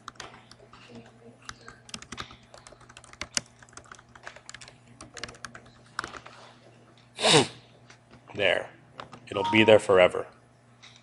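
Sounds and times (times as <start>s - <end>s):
low steady hum: 0.0s - 11.0s
typing on computer keyboard: 1.5s - 6.2s.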